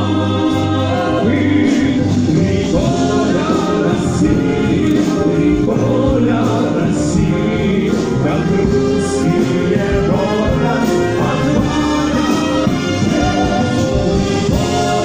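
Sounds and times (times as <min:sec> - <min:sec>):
brass band playing: 0:00.0 - 0:15.0
voices singing: 0:00.0 - 0:15.0.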